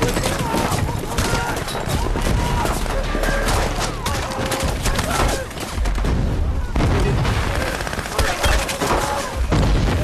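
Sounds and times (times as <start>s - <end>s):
rifle and machine-gun fire: 0.0s - 10.0s
explosions booming: 5.8s - 7.8s, 9.4s - 10.0s.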